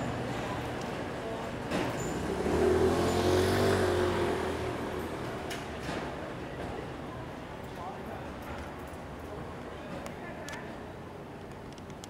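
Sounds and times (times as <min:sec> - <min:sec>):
street noise: 0:00.0 - 0:12.0
vehicle engine passing: 0:02.1 - 0:05.7.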